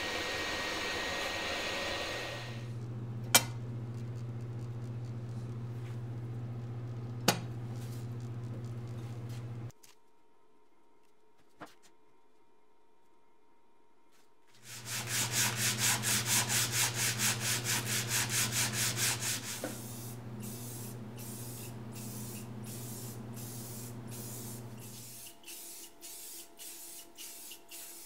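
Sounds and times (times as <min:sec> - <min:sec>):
steady hum: 0:00.0 - 0:09.7, 0:14.8 - 0:25.0
sandpaper scraping: 0:14.6 - 0:19.6
spray paint hissing: 0:14.7 - 0:28.0.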